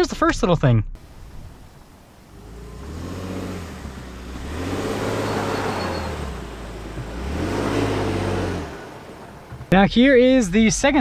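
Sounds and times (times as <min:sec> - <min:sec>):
truck engine revving: 0:01.0 - 0:09.8.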